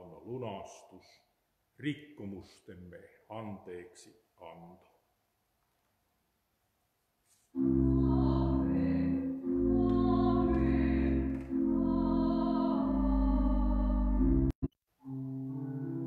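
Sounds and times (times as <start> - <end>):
church organ playing held chords: 7.6 - 16.0.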